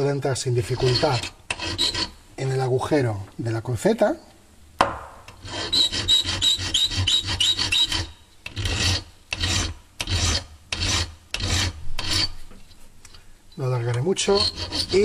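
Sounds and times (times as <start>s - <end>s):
file rasping on metal: 0.6s - 2.2s, 5.4s - 12.4s, 14.1s - 15.0s.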